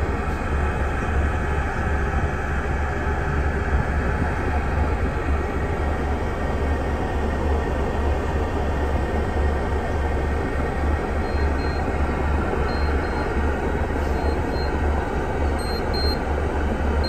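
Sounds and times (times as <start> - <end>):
bus rumble and road noise: 0.0 - 17.0.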